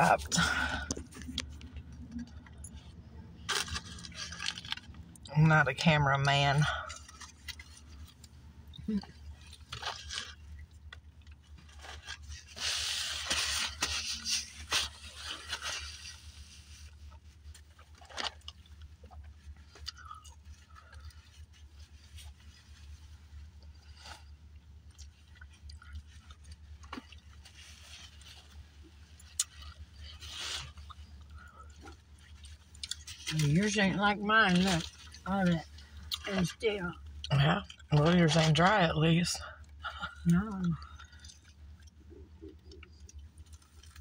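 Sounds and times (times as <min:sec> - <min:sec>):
steady low hum: 0:00.0 - 0:44.0
chewing: 0:17.6 - 0:21.7, 0:23.6 - 0:33.4, 0:39.6 - 0:44.0.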